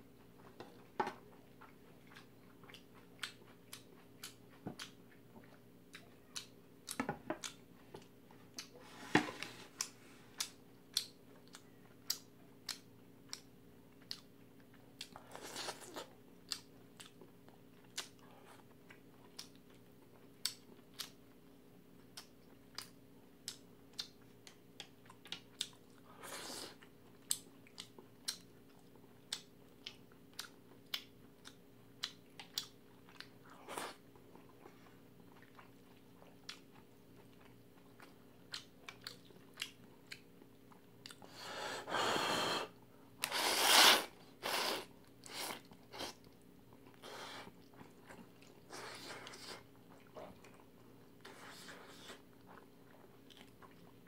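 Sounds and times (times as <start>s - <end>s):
wet chewing with mouth clicks: 0.2s - 8.8s, 9.4s - 41.4s, 43.2s - 54.0s
noodle slurps: 41.9s - 46.2s.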